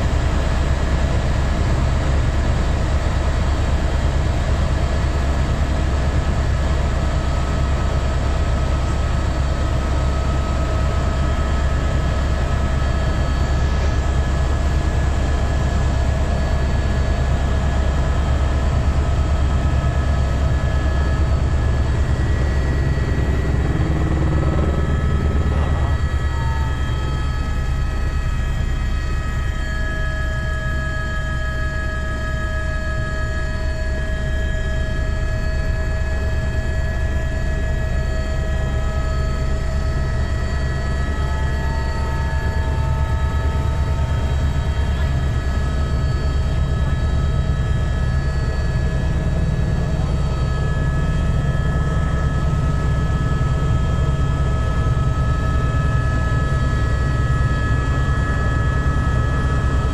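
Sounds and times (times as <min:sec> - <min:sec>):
engine and transmission whine: 0:00.0 - 0:59.9
helicopter rotor drone: 0:00.0 - 0:59.9.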